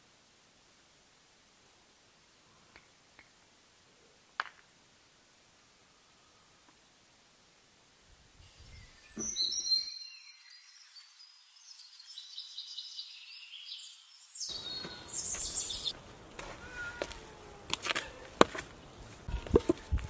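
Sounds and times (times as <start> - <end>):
songbirds chirping and trilling: 8.4 - 20.0.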